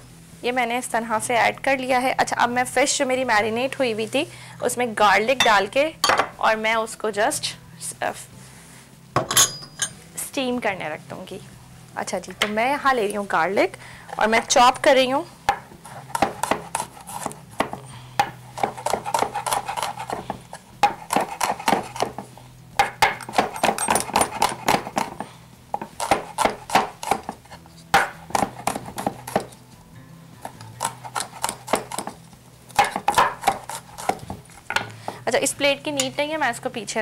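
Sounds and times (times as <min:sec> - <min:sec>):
knife chopping on wooden board: 0:15.5 - 0:29.6, 0:30.5 - 0:34.9.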